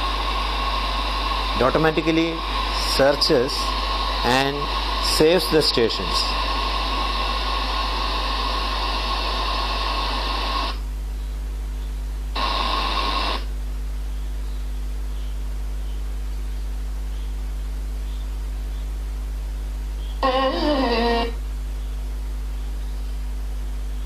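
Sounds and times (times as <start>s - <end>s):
radio station broadcast: 0.0s - 10.8s, 12.4s - 13.5s
radio static hiss: 0.0s - 24.0s
steady low hum: 0.0s - 24.0s.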